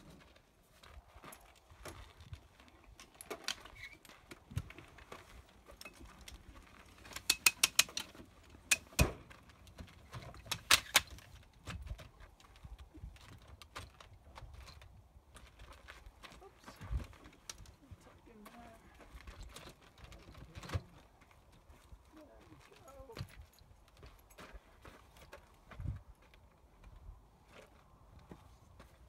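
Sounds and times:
metal ladder clicking and rattling: 5.7s - 12.2s.

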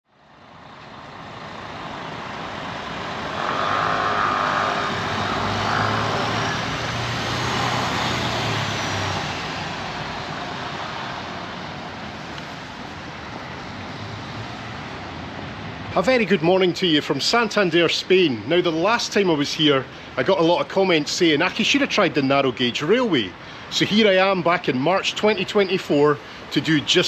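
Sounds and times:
traffic hiss: 0.2s - 27.0s
vehicle engine passing: 1.2s - 11.8s.

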